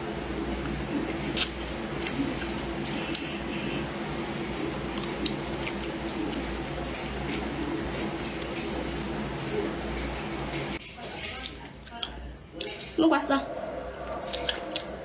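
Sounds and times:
steady low hum: 0.0 - 10.9, 11.6 - 15.0
chewing crisp green beans: 4.5 - 15.0.

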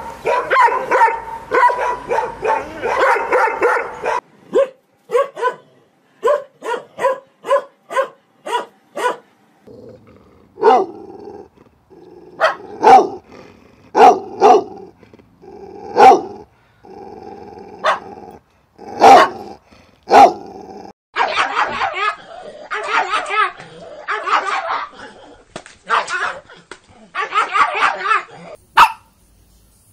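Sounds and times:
dogs barking: 0.0 - 9.2, 10.6 - 11.2, 12.3 - 13.3, 13.9 - 14.9, 15.9 - 16.4, 17.8 - 18.3, 18.9 - 20.5, 21.2 - 24.9, 27.1 - 29.1.

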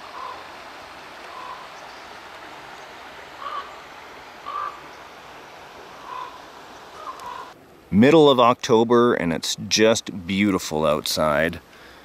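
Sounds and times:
rushing background hiss: 0.0 - 12.0
corvids croaking: 3.4 - 4.9, 6.0 - 7.6.

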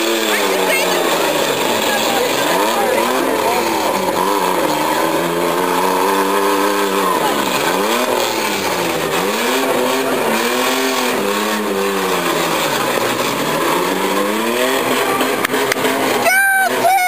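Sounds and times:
car engines revving hard: 0.0 - 17.0.

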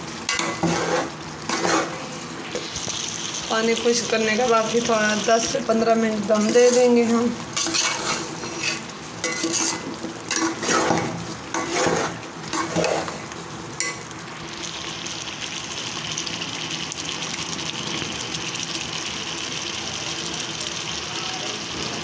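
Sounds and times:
liquid sizzling and bubbling: 0.0 - 22.0
spoon scraping a pot: 0.3 - 2.0, 7.6 - 13.2.

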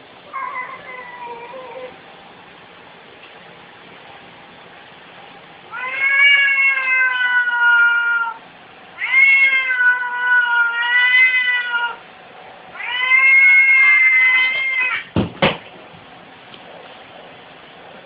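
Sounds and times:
cat yowling: 0.3 - 1.9, 5.7 - 8.4, 9.0 - 12.0, 12.7 - 15.1.

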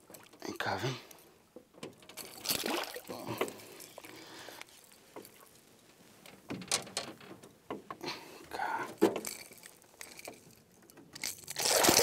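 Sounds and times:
fish splashing and knocking boat: 1.7 - 5.6.

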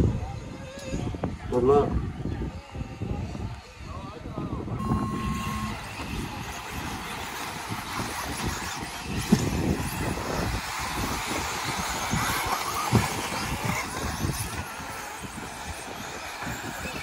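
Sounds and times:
rc car motors whining: 4.5 - 17.0.

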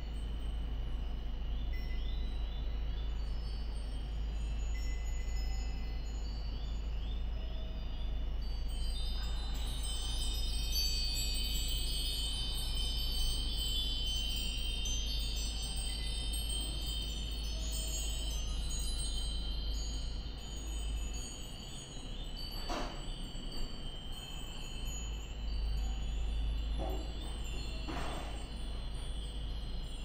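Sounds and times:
wind bells tinkling: 0.0 - 30.0.

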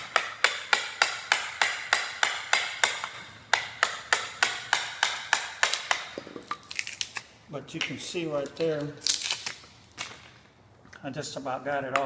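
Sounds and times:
hammer striking chisel: 0.0 - 6.5.

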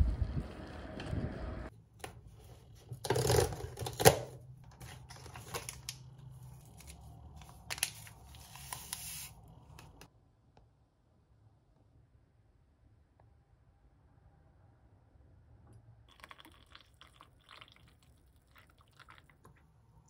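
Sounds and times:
wind on microphone: 0.0 - 1.7.

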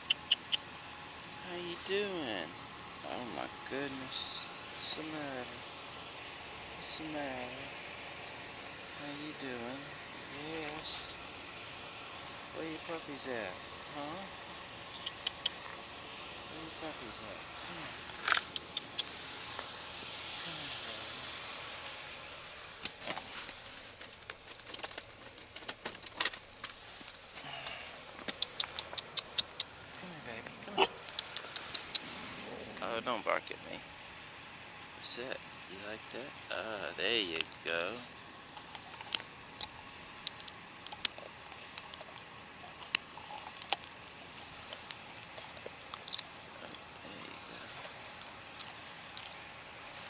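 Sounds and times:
steady hiss: 0.0 - 50.0
dog eating crunching on gravel: 17.6 - 19.7, 38.5 - 49.6.

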